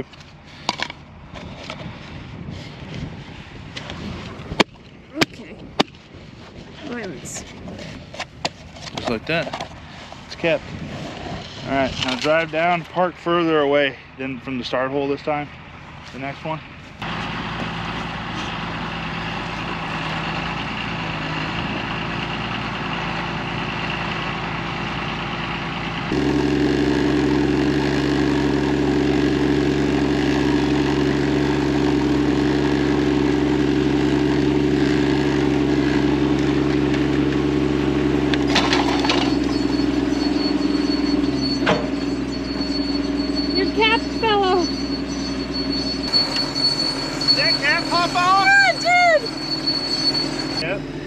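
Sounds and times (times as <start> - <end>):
diesel tractor engine running: 11.6 - 51.0.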